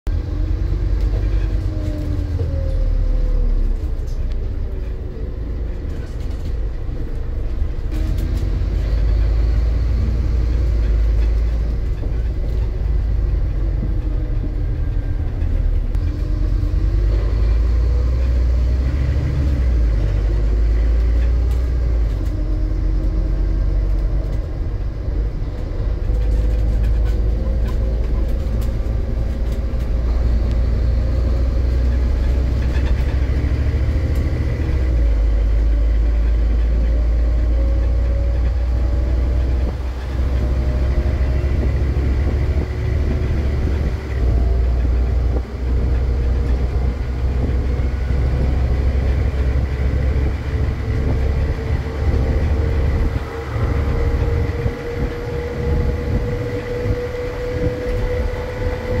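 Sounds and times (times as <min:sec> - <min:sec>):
bus diesel engine rumbling: 0:00.0 - 0:59.0.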